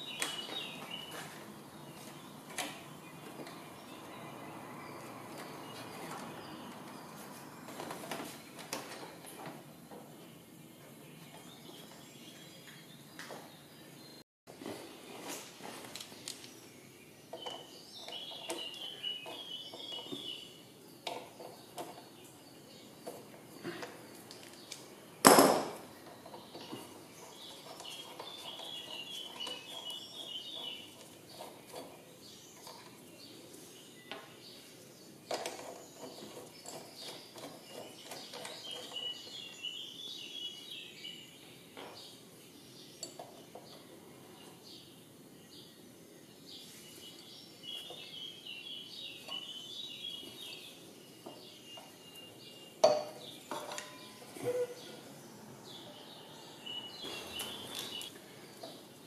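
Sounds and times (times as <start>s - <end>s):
birds singing faintly: 0.0s - 59.0s
metal tools clanking: 52.8s - 54.8s.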